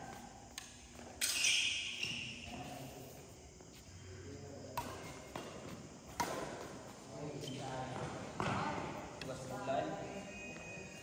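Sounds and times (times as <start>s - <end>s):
racket hitting shuttlecock: 0.1s - 2.4s, 4.7s - 6.8s.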